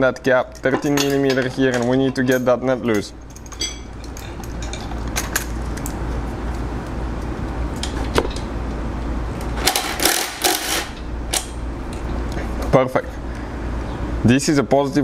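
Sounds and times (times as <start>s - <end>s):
cordless ratchet running: 9.6s - 11.5s.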